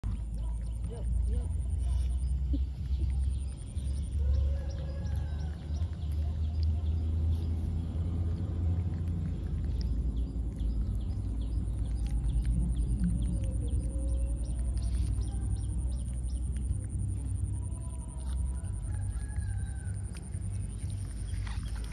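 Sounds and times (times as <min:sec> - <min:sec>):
monkeys chewing clicks: 0:00.0 - 0:21.9.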